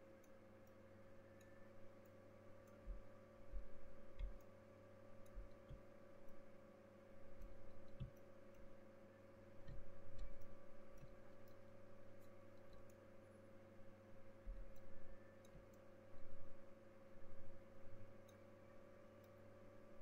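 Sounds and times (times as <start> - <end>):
low electrical hum: 0.0 - 20.0
faint clicks: 18.2 - 18.5.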